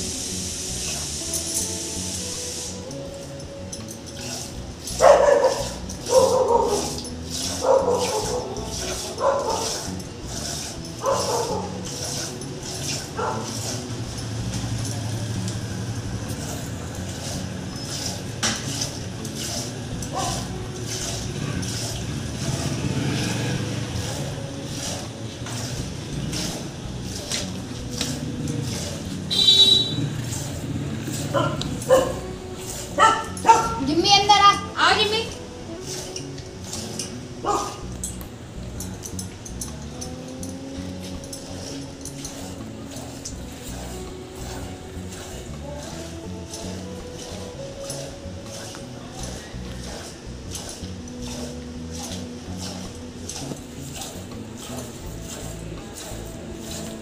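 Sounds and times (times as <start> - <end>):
dog barking: 5.0 - 9.9, 11.0 - 11.8, 13.1 - 13.6, 20.1 - 20.5, 31.3 - 32.3, 32.9 - 33.9, 37.4 - 37.9.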